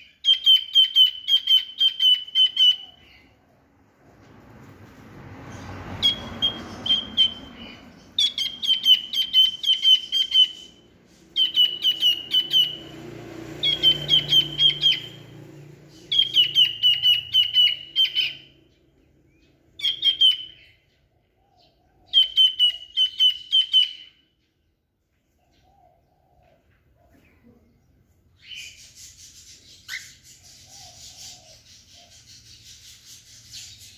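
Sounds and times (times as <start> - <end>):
cockatiel chirping: 0.0 - 3.2, 6.0 - 13.0, 13.6 - 15.2, 16.0 - 18.5, 19.8 - 20.8, 22.1 - 24.2.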